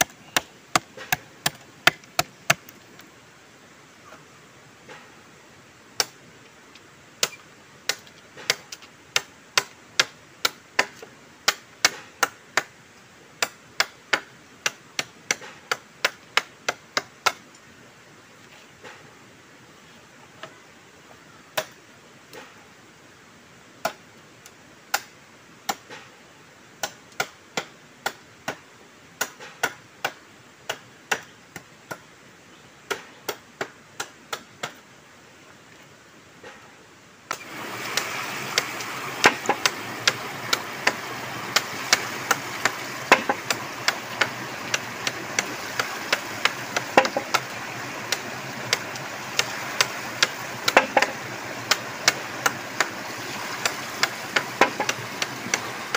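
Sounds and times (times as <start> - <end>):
knife chopping bamboo: 0.0 - 2.7, 38.5 - 53.0, 53.6 - 55.7
stream rushing over rocks: 37.3 - 55.9.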